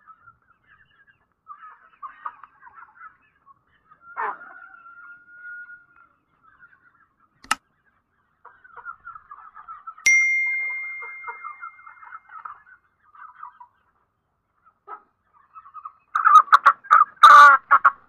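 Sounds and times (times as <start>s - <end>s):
chickens clucking: 0.0s - 10.0s, 11.6s - 18.0s
bell-like ding: 10.1s - 12.4s.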